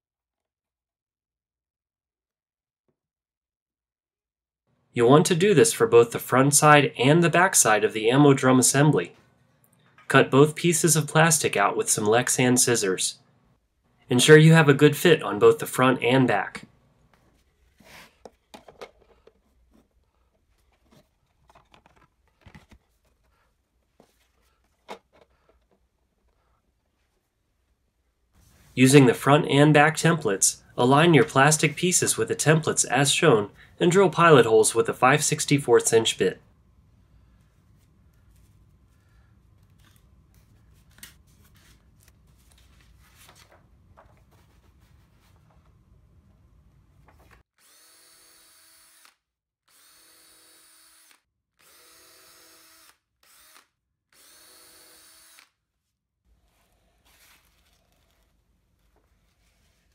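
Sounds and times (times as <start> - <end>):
paper and plastic rustling: 17.2 - 25.8, 39.6 - 45.8, 47.0 - 47.4, 56.8 - 59.9.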